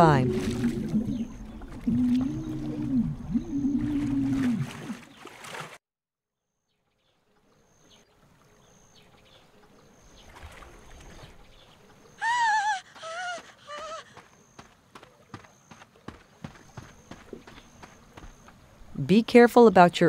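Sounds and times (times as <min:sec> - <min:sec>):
muffled water: 0:00.0 - 0:05.8, 0:07.9 - 0:12.3
faint outdoor ambience: 0:06.9 - 0:20.0
woman crying out: 0:12.2 - 0:14.2.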